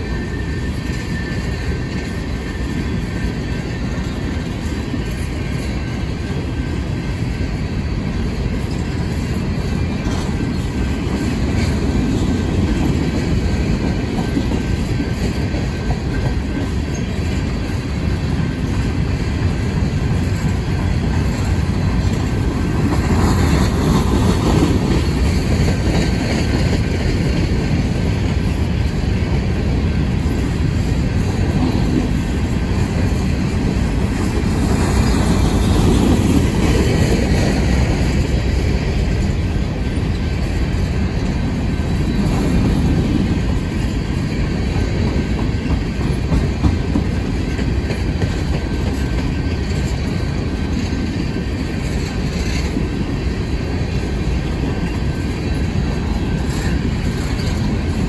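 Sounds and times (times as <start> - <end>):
freight train wheels rumbling: 0.0 - 58.0.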